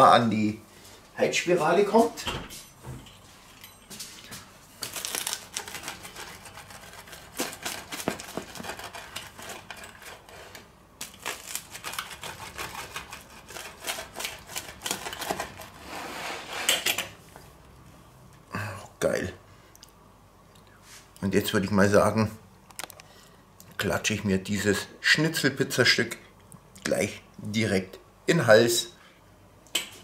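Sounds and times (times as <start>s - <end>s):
pizza wheel crunching crust: 4.7s - 16.8s
crackling of slices pulled apart: 4.8s - 6.2s.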